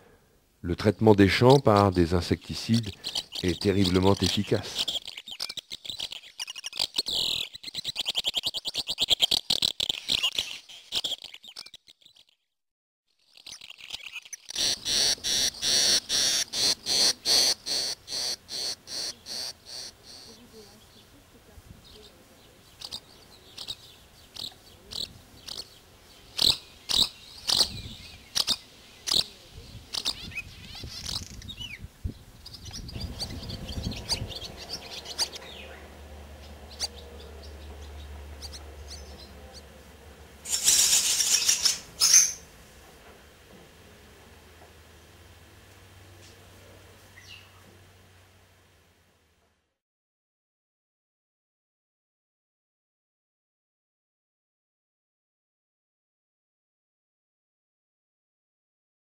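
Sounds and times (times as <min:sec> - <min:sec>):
nestlings begging calls: 0:00.9 - 0:12.4, 0:13.2 - 0:21.2, 0:21.8 - 0:42.6
swallow twittering: 0:01.3 - 0:12.5, 0:13.2 - 0:21.1, 0:22.7 - 0:31.8, 0:32.4 - 0:39.7, 0:40.4 - 0:42.5.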